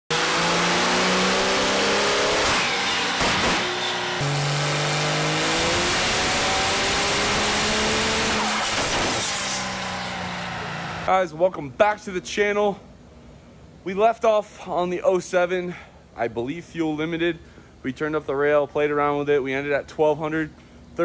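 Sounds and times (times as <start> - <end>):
diesel engine revving on dyno: 0.1 - 11.1.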